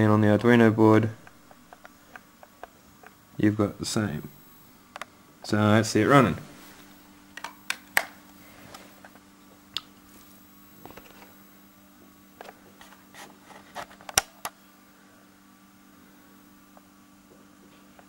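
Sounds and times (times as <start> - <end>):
faint steady hum: 0.0 - 18.0
camcorder handling clicks and knocks: 7.4 - 8.2.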